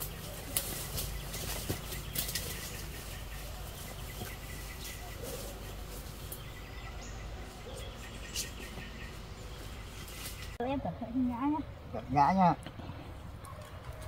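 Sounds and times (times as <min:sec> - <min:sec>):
twigs snapping: 0:00.0 - 0:06.5
dry leaves rustling and crackling: 0:00.0 - 0:10.6.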